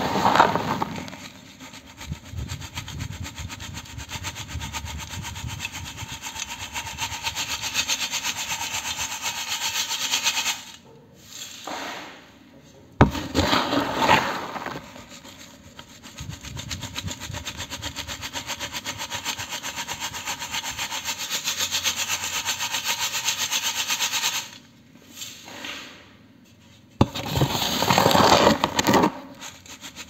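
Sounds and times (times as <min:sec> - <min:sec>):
grit rasping against metal mesh: 0:00.8 - 0:10.8, 0:13.3 - 0:24.6, 0:28.8 - 0:30.0.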